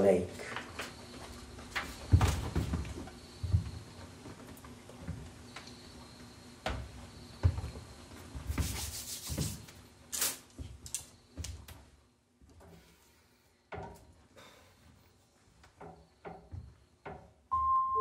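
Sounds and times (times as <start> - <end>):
rubbing and rustling: 7.6 - 10.8.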